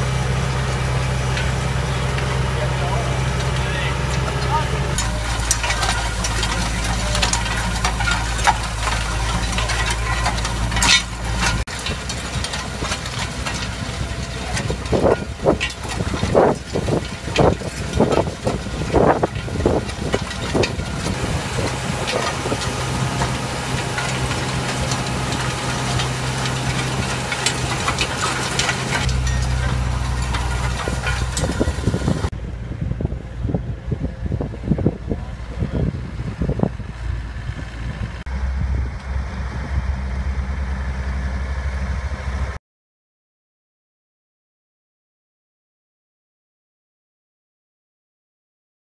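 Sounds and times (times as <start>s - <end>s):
tractor engine running: 0.0s - 42.6s
implement clicking and rattling: 1.3s - 32.3s.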